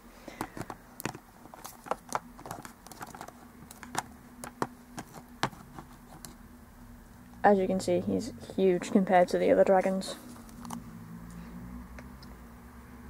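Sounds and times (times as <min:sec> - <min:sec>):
faint steady hum: 0:00.0 - 0:13.0
plastic toys clicking and knocking: 0:00.3 - 0:06.3.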